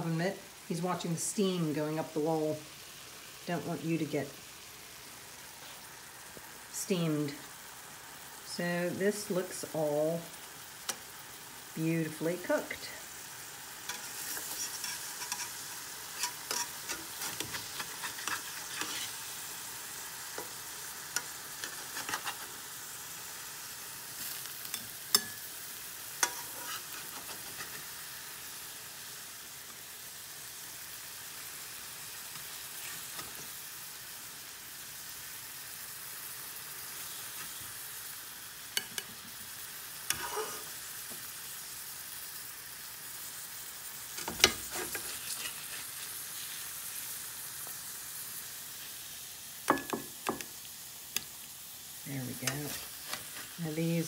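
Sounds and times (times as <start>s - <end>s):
food sizzling in a frying pan: 0.0s - 54.0s
metal spatula scraping a pan: 13.9s - 22.7s, 24.1s - 25.5s, 26.1s - 28.0s, 44.2s - 46.7s, 52.3s - 53.6s.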